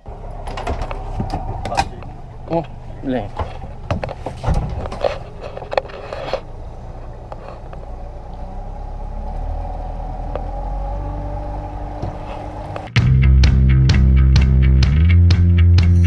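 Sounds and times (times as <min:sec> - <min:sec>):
outboard motor drone: 0:00.0 - 0:13.0.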